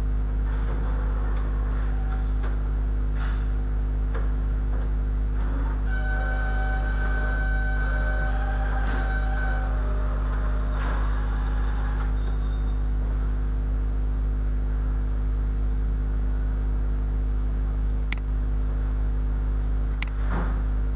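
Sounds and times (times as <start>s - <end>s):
low electrical hum: 0.0s - 20.9s
short clicks: 18.1s - 18.3s.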